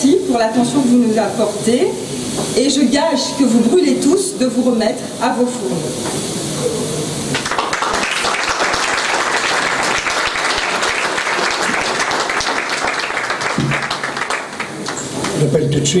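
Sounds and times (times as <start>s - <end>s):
audience applauding: 7.3s - 15.6s.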